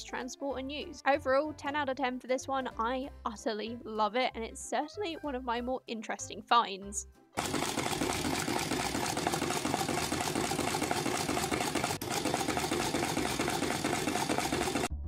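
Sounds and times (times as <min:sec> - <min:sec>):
sewing machine clattering: 0:07.4 - 0:14.9.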